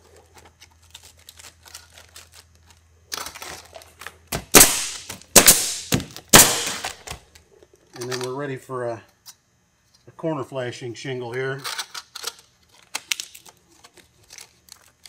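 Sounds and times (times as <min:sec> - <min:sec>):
nail gun shots: 0:04.4 - 0:07.2.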